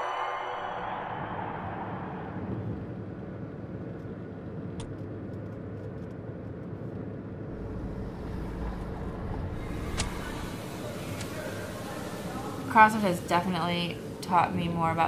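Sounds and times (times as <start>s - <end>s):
passing vehicle low rumble: 0.9s - 15.0s
street traffic noise: 4.7s - 15.0s.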